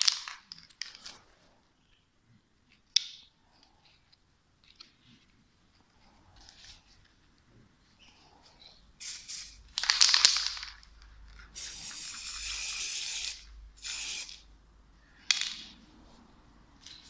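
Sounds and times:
spray paint can hissing: 9.0s - 10.6s, 11.5s - 14.4s.

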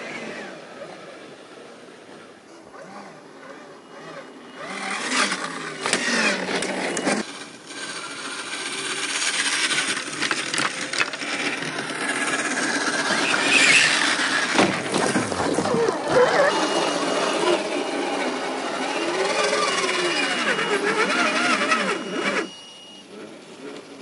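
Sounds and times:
electric motor and gear whine: 0.0s - 24.0s
tyres crunching on gravel: 9.3s - 16.5s
sharp knocks of truck landing: 14.5s - 15.9s.

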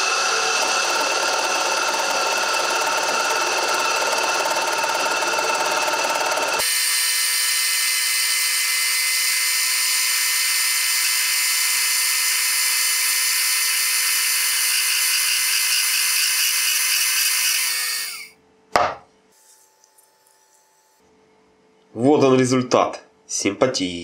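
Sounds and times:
metal lathe cutting with high whine: 0.0s - 18.3s
sharp knock: 18.8s - 19.1s.

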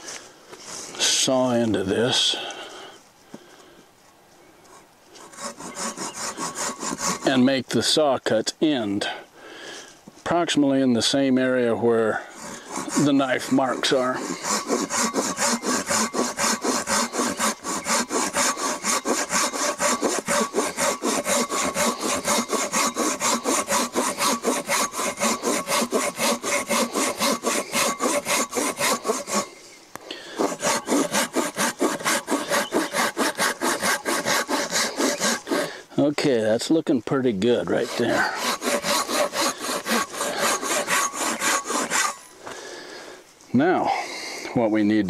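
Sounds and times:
hand saw cutting log: 4.7s - 8.0s, 10.8s - 36.3s, 37.2s - 42.3s.

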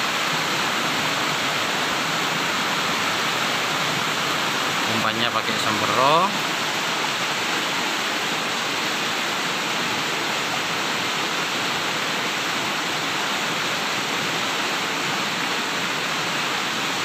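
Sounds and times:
river flowing over rocks: 0.0s - 17.0s.

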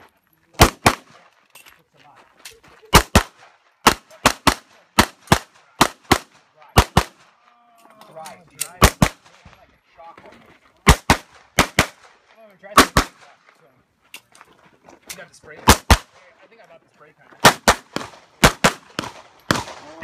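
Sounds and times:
pistol shots: 0.6s - 1.3s, 2.9s - 7.3s, 8.8s - 9.4s, 10.8s - 13.4s, 15.6s - 16.2s, 17.4s - 20.0s.

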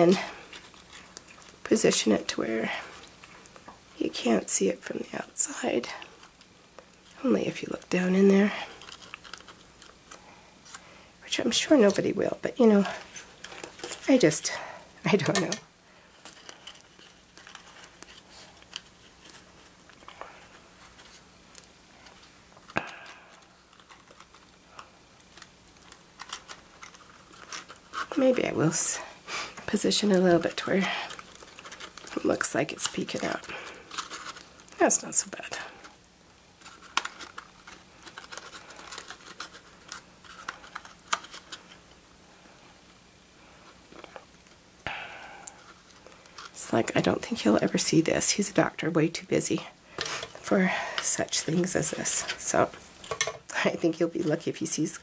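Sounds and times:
paper rustling: 6.0s - 10.9s, 12.7s - 41.9s.

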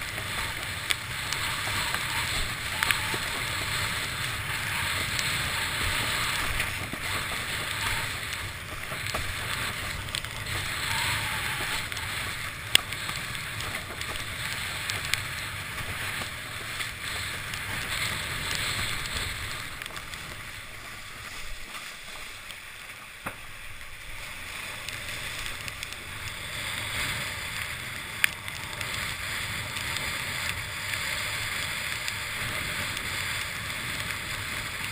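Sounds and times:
wind buffeting camera: 0.0s - 21.7s
water rushing past a board: 0.0s - 34.9s.

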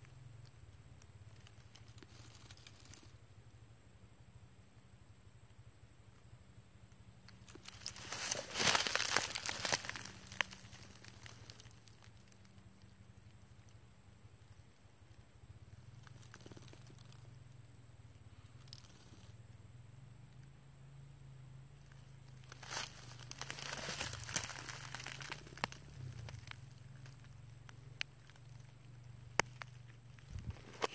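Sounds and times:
rustling in dry leaf litter: 7.4s - 12.0s, 22.4s - 26.6s.

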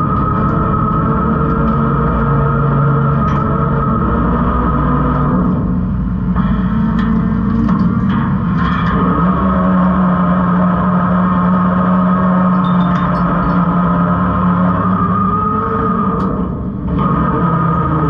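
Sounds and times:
garbage truck engine and hydraulics drone: 0.0s - 18.0s.

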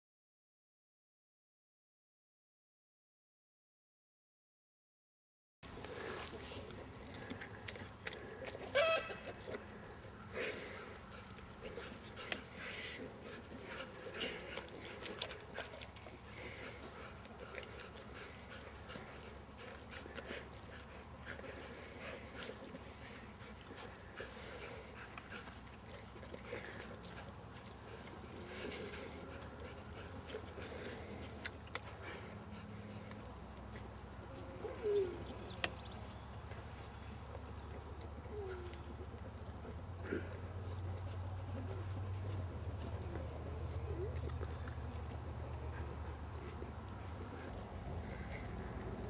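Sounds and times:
dog chewing meat: 5.7s - 49.0s
dog low coo-like call: 8.5s - 10.5s, 34.2s - 35.6s, 37.8s - 45.1s.

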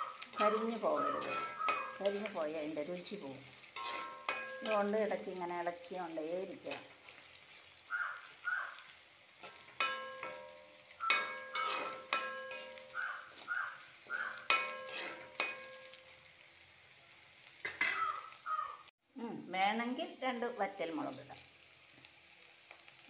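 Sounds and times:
oil sizzling: 0.0s - 23.0s
metal spoon clinking on pan: 0.2s - 2.4s, 3.8s - 5.1s, 9.4s - 13.0s, 14.4s - 16.1s, 17.6s - 18.2s.

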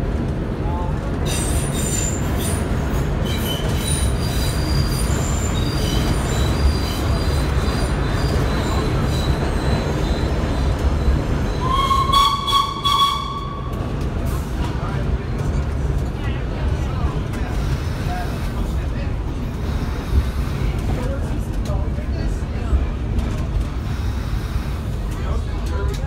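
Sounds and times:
subway train rumbling: 0.0s - 26.0s
train wheels squealing: 1.3s - 13.7s.

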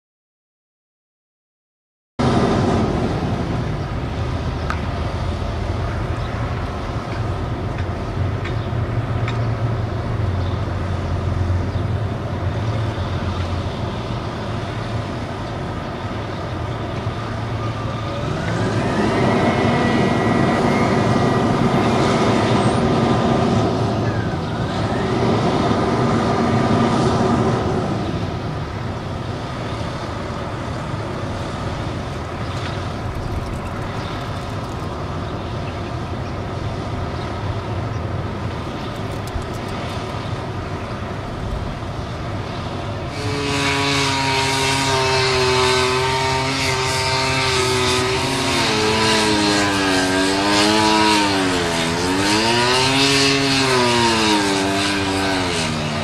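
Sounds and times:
chainsaw revving: 43.1s - 56.0s.

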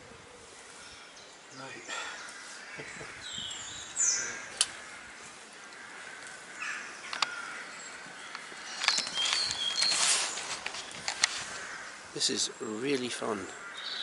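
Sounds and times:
crow cawing: 1.9s - 8.9s, 11.3s - 12.4s, 13.2s - 14.0s
footsteps on stone steps: 7.1s - 11.8s.

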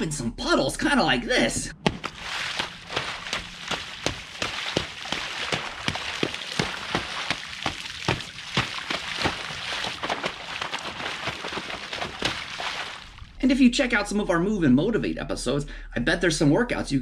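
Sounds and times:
feet splashing in puddle: 1.8s - 13.3s.

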